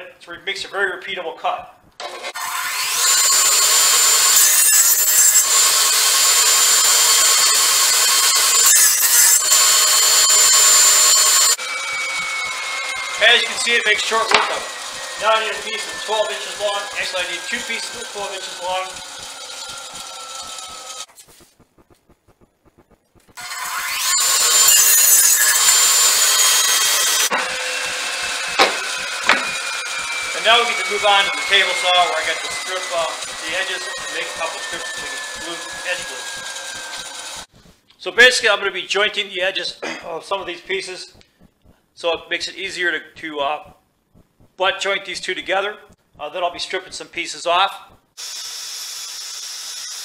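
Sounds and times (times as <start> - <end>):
radial arm saw whining: 1.8 - 38.6, 47.5 - 50.0
saw rasping through wood: 2.0 - 21.2, 23.3 - 37.8.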